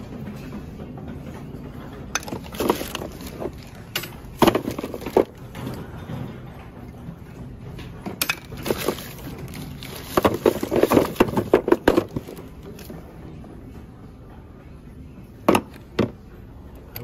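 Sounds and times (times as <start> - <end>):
plastic pipe fittings clattering: 2.1 - 6.3, 8.1 - 13.0.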